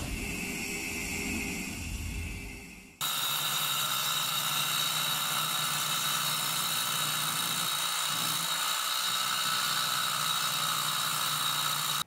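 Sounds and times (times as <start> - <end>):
concrete saw cutting concrete: 3.0 - 12.0.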